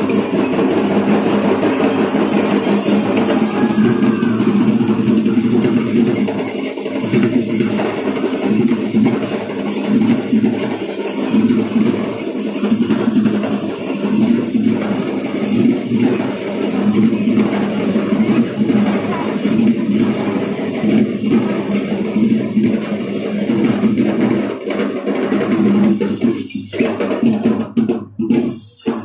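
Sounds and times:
drumming: 0:00.0 - 0:29.0
dancers stamping: 0:00.1 - 0:05.6.

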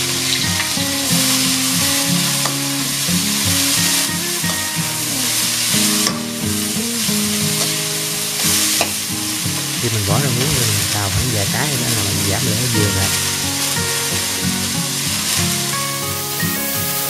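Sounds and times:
food sizzling in a wok: 0:00.0 - 0:09.8, 0:12.8 - 0:17.0
background music: 0:09.8 - 0:17.0.

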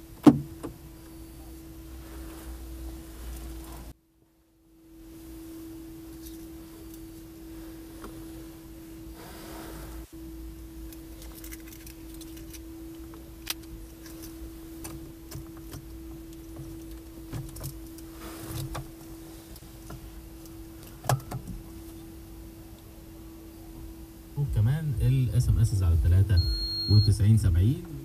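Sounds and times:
faint steady hum: 0:00.0 - 0:28.0
car keys rattling: 0:11.0 - 0:12.7.

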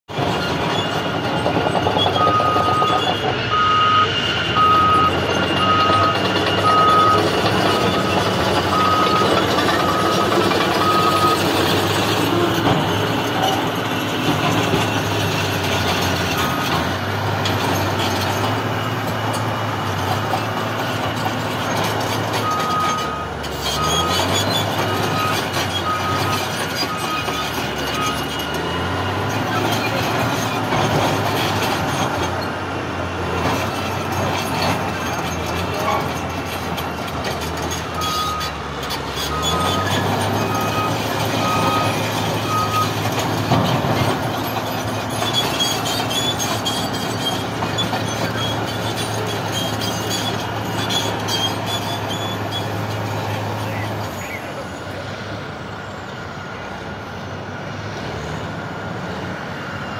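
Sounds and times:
heavy vehicle engine running: 0:00.1 - 0:59.9
reversing alarm beeping: 0:02.0 - 0:16.8, 0:22.4 - 0:29.7, 0:37.7 - 0:38.6, 0:39.2 - 0:43.6.

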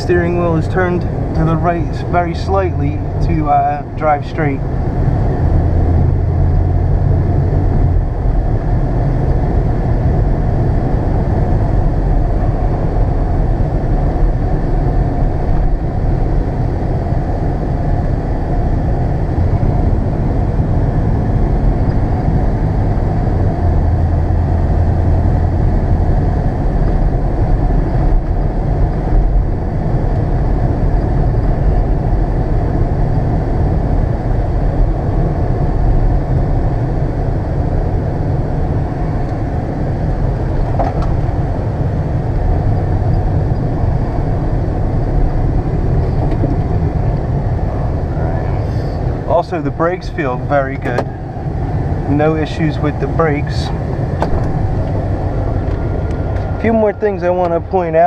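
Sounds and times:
low engine hum: 0:00.0 - 0:58.0
pickup truck engine and road rumble: 0:00.0 - 0:58.0.

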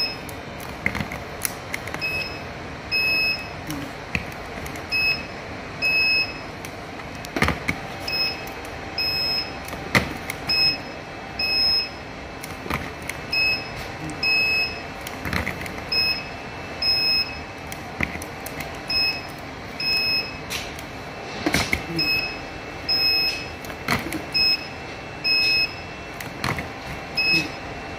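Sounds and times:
short high beep: 0:27.2 - 0:27.6.

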